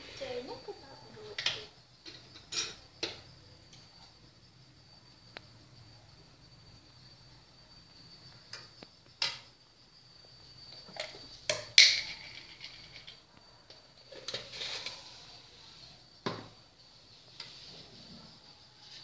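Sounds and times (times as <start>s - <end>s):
metal utensils scraping a wok: 14.1s - 15.5s.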